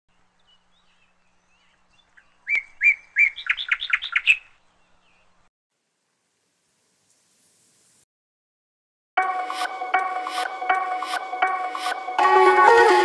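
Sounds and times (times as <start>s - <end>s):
bird chirping: 0.1s - 5.5s.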